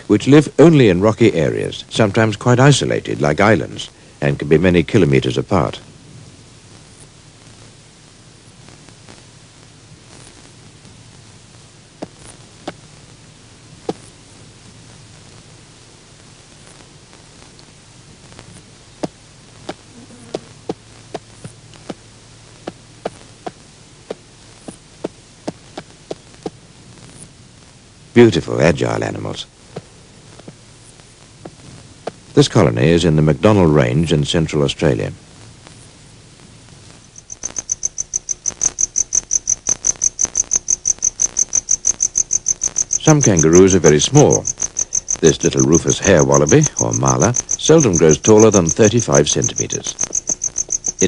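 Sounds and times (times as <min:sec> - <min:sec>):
steady hiss: 0:00.0 - 0:51.0
cricket chirping: 0:37.0 - 0:51.0.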